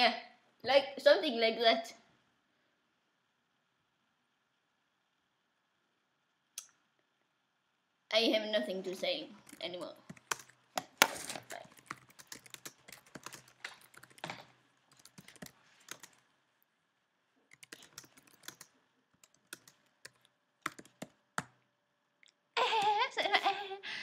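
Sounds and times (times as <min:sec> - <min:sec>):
keyboard typing clicks: 0:09.4 - 0:16.2, 0:17.5 - 0:21.6.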